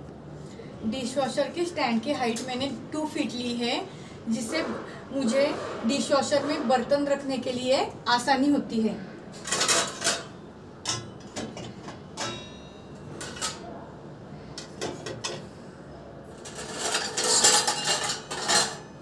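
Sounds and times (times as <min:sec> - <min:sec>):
dishes clattering in dishwasher racks: 0:09.4 - 0:12.5, 0:16.5 - 0:18.9.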